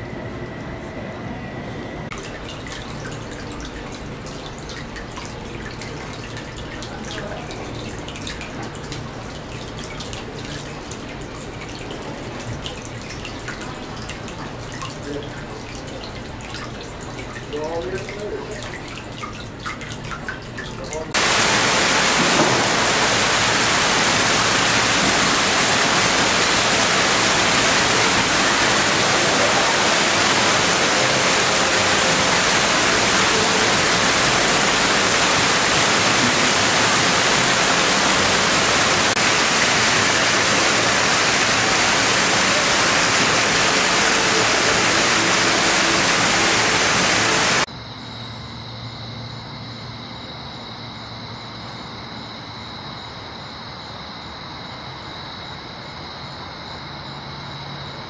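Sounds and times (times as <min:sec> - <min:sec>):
fountain water rushing: 0:21.1 - 0:47.7
hiss: 0:21.2 - 0:47.7.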